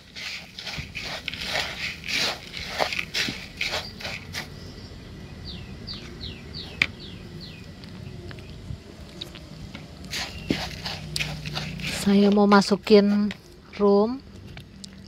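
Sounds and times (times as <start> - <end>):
rustling in plastic bowl: 0.0 - 4.5, 10.1 - 12.4.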